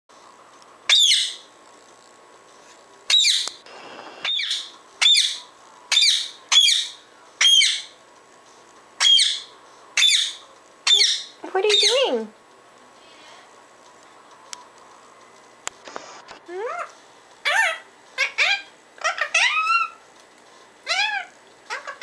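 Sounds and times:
parakeet squawking: 0.9 - 1.5, 3.1 - 3.5, 4.2 - 8.0, 9.0 - 12.3, 16.5 - 20.0, 20.8 - 22.0.

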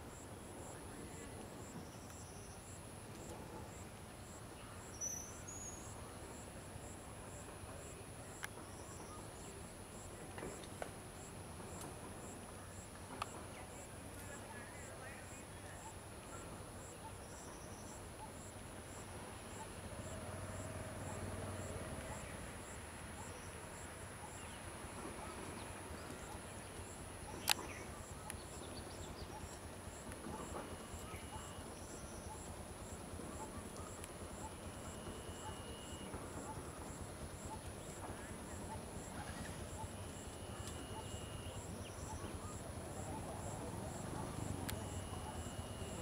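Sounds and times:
pulsing insect chirp: 14.8 - 46.0.

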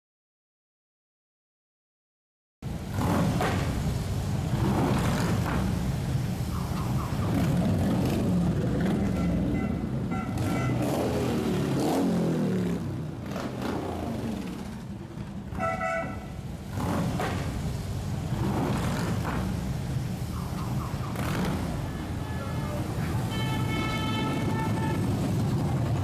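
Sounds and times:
motorcycles rumbling past: 2.9 - 26.0
horn tooting: 8.9 - 11.4, 15.5 - 16.5, 21.2 - 25.4.

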